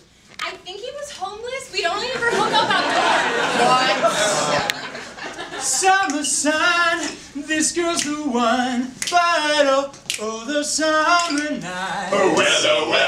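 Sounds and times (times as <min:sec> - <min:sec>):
men singing together: 0:05.5 - 0:13.0.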